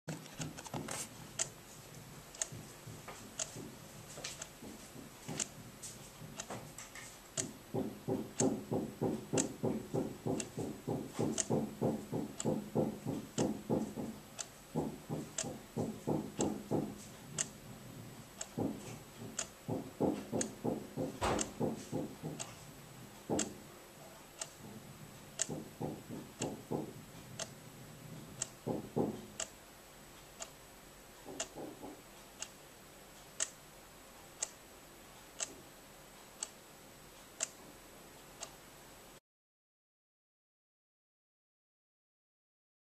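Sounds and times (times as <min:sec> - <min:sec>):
alarm clock ticking: 0:02.2 - 0:06.6, 0:07.2 - 0:37.6
muffled hammering: 0:07.4 - 0:23.8, 0:24.5 - 0:29.5, 0:31.3 - 0:32.1.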